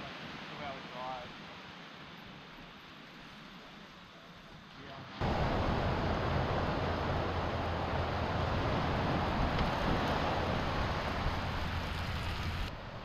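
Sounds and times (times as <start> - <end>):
low hum: 5.2 - 13.0.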